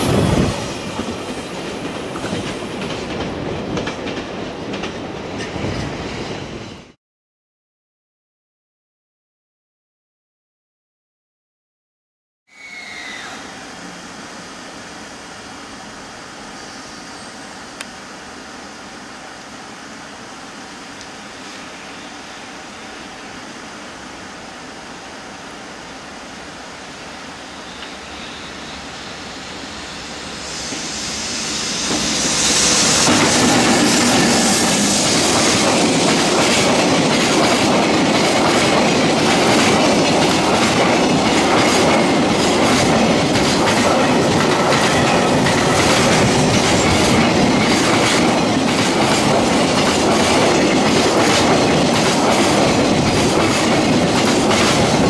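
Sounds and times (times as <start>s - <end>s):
electric locomotive passing: 0.0s - 6.9s, 12.5s - 55.0s
train wheels clattering over rail joints: 31.9s - 55.0s.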